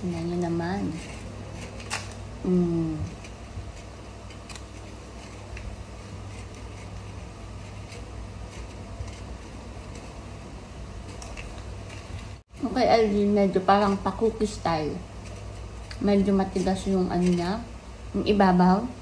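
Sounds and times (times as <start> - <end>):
paper baking cup peeling: 0.0 - 12.4, 13.8 - 17.6
steady low hum: 0.0 - 19.0
person humming: 2.4 - 3.2.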